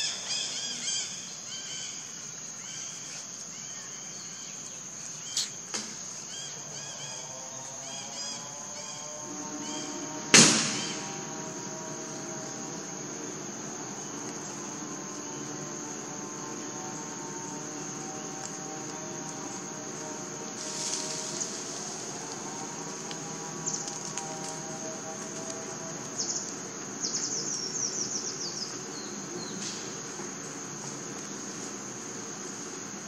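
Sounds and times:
insects droning: 0:00.0 - 0:33.0
sharp crack: 0:10.4 - 0:11.1.

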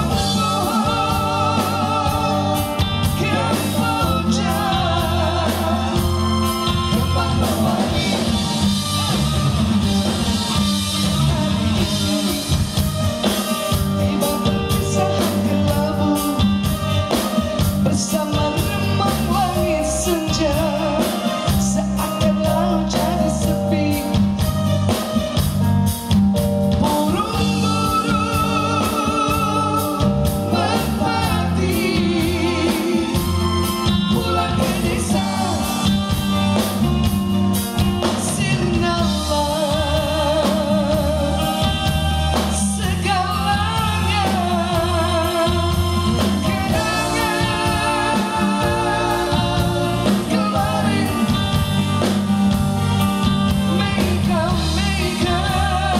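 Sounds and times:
drum kit beat: 0:00.0 - 0:55.9
electric guitar: 0:00.0 - 0:55.9
keyboard: 0:00.0 - 0:55.9.

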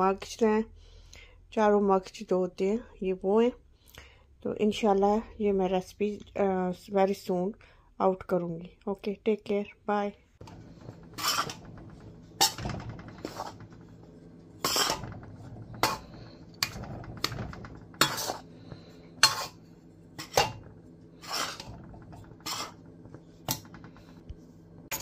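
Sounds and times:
steady low hum: 0:10.2 - 0:25.0
metal spoon scraping a bowl: 0:10.4 - 0:24.1.

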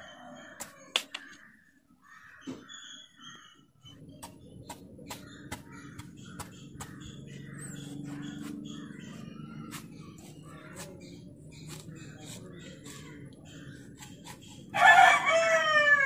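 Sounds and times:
birds calling: 0:00.0 - 0:16.0
knife cutting mango skin: 0:07.8 - 0:08.7, 0:09.6 - 0:14.8.

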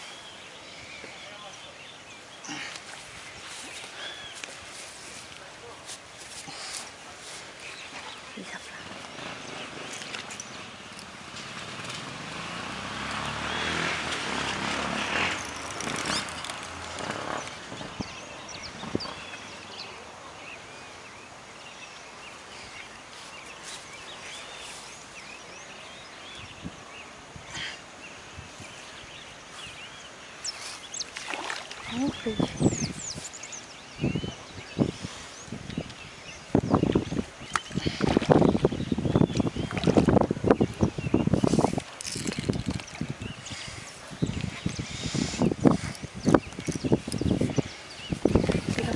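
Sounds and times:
birds chirping: 0:00.0 - 0:48.9
vehicle passing: 0:10.6 - 0:17.6.

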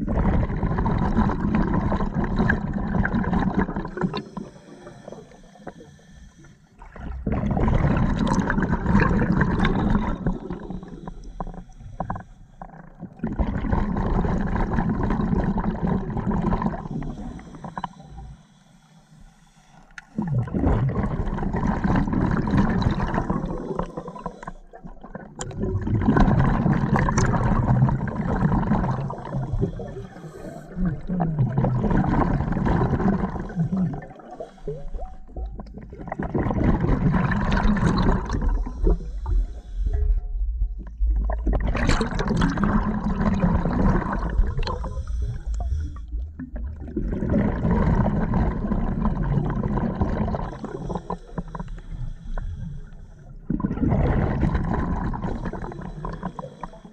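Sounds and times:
exhaled bubbles rushing: 0:00.0 - 0:05.3, 0:06.8 - 0:17.8, 0:20.2 - 0:51.7, 0:53.4 - 0:56.9
regulator inhale hiss: 0:04.1 - 0:06.8, 0:10.6 - 0:12.7, 0:16.9 - 0:20.2, 0:23.6 - 0:24.8, 0:29.3 - 0:30.8, 0:33.4 - 0:35.0, 0:38.6 - 0:40.1, 0:44.7 - 0:46.2, 0:50.4 - 0:53.4, 0:55.4 - 0:56.9.

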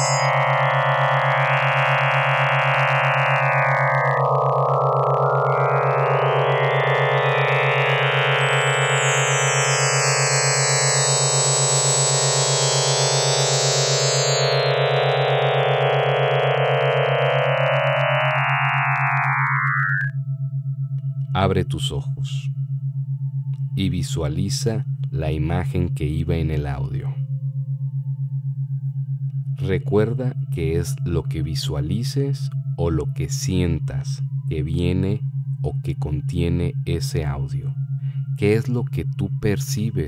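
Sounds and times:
high shimmering synth tones: 0:00.0 - 0:02.3, 0:03.2 - 0:20.1
low electronic hum with flutter: 0:00.0 - 0:40.0.

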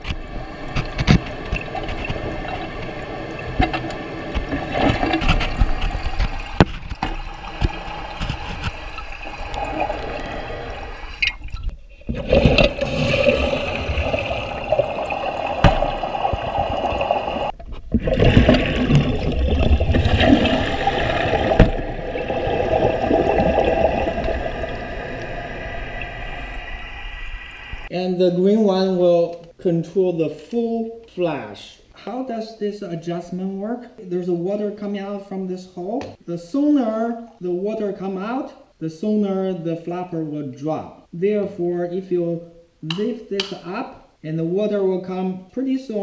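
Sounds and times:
toilet flushing: 0:12.0 - 0:26.6.

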